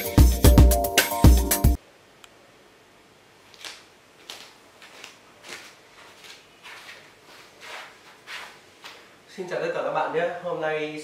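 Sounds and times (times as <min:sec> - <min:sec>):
rustling: 0:03.4 - 0:09.3
faint shuffling footsteps: 0:03.5 - 0:09.5.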